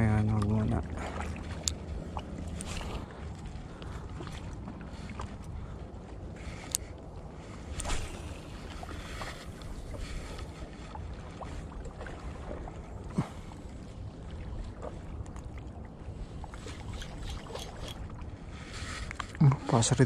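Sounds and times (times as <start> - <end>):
light ticks: 1.6 - 1.8, 6.6 - 6.9.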